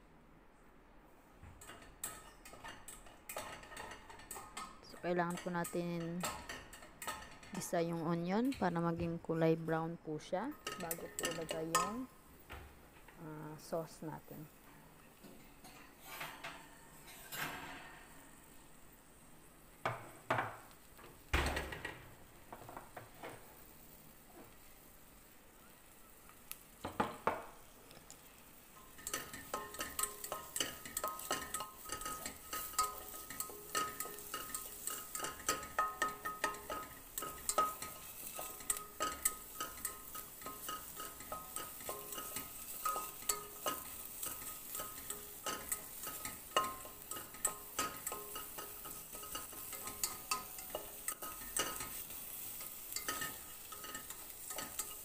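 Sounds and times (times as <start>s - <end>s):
onion sizzling in a frying pan: 1.5s - 55.0s
utensil scraping a pan: 15.2s - 18.2s, 28.8s - 55.0s.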